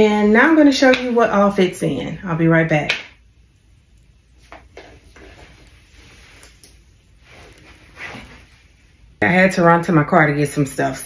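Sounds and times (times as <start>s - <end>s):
bag rustling: 7.2s - 8.7s.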